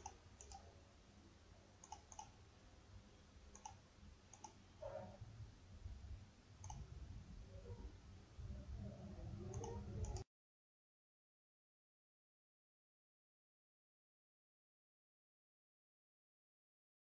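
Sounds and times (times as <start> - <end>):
faint mouse button clicks: 1.8 - 2.3, 3.5 - 4.6, 6.6 - 6.8, 9.5 - 10.2.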